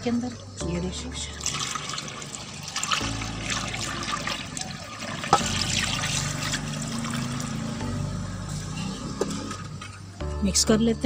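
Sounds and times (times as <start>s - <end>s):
broth splashing into pot: 1.4s - 7.7s.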